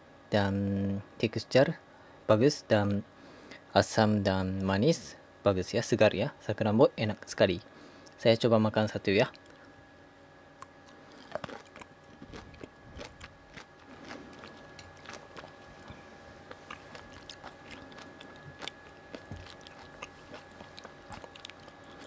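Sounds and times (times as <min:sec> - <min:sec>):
person chewing cherries: 0:09.3 - 0:09.7, 0:10.6 - 0:22.0.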